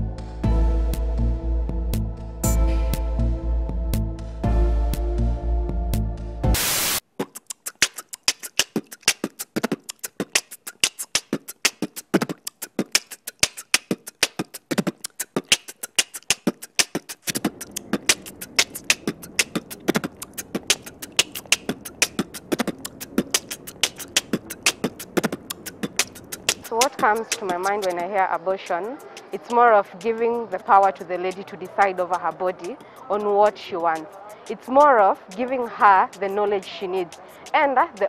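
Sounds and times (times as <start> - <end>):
beatbox style percussive beat: 6.5 - 38.0
faint street noise: 10.4 - 38.0.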